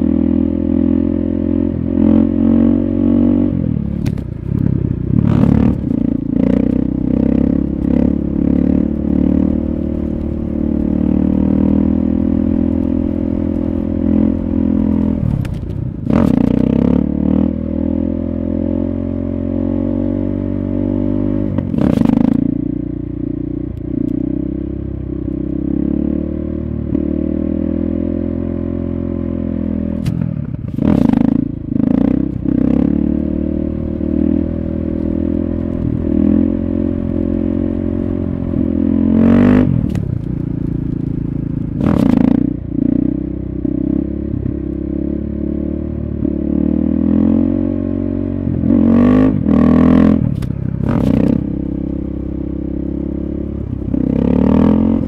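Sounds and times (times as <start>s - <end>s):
motorcycle engine running hard: 0.0s - 55.0s.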